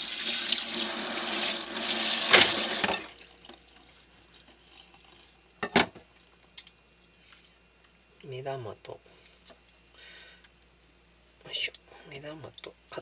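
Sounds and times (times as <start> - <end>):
tap running into sink: 2.1 - 3.1.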